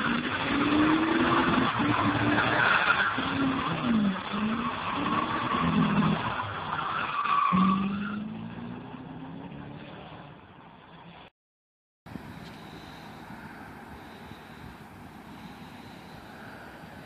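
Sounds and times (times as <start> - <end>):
car engine revving: 0.0 - 6.6.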